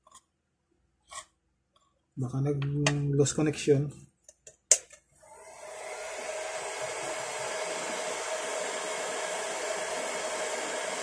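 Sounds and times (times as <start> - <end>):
heat gun blowing hiss: 5.2 - 11.0.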